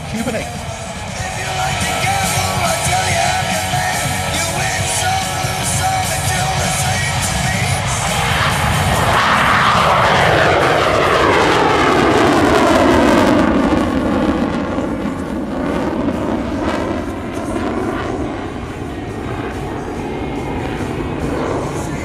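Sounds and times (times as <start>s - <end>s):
falling whine: 0.0s - 22.0s
jet engines roaring: 0.0s - 22.0s.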